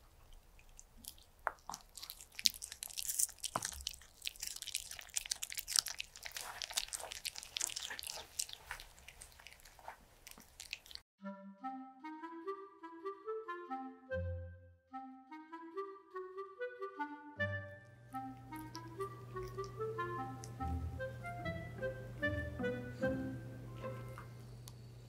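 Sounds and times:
dog chewing food: 0.2 - 11.0, 18.3 - 20.8
clarinet tune: 11.2 - 24.4.

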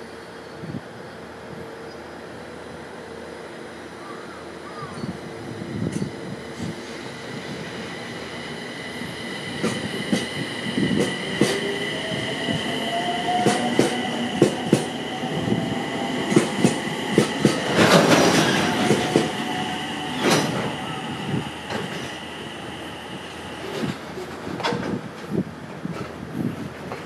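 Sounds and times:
train wheels clicking over rail joints: 9.3 - 19.5, 20.1 - 20.8.

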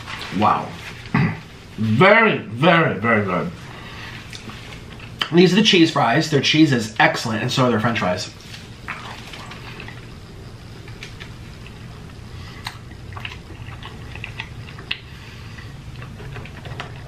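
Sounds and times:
steady low hum: 0.0 - 17.0
wet chewing: 8.5 - 10.2, 10.8 - 17.0.

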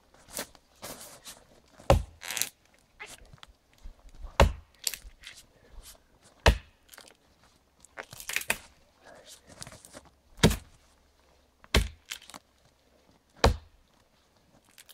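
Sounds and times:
footsteps crunching snow and twigs: 0.0 - 11.0
axe chopping a tree trunk: 1.8 - 2.2, 4.4 - 4.7, 6.4 - 6.9, 10.4 - 10.7, 11.7 - 12.3, 13.4 - 13.7.

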